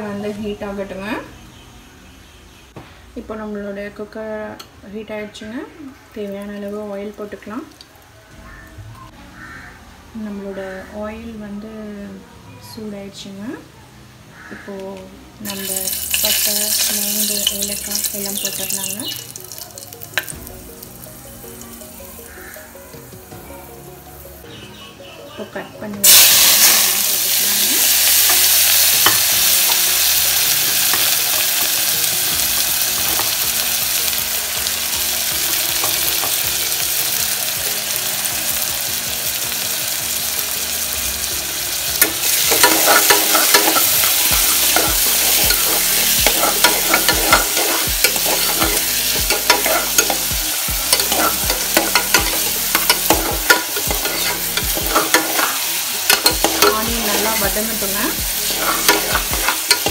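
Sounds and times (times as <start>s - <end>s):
onions sizzling in hot oil: 15.4s - 23.1s, 26.0s - 59.9s
metal spoon scraping pot: 50.9s - 57.3s.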